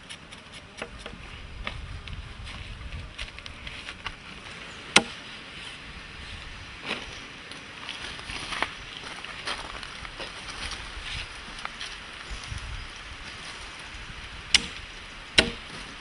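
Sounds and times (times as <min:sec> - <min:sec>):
machete chopping meat on wood: 0:15.4 - 0:15.7.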